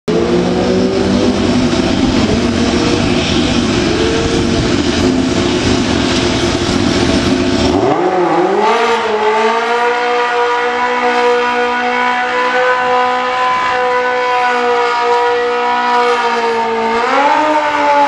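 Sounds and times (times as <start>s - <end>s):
tyre spinning roar: 0.1s - 10.5s
motorcycle engine revving: 0.1s - 18.0s.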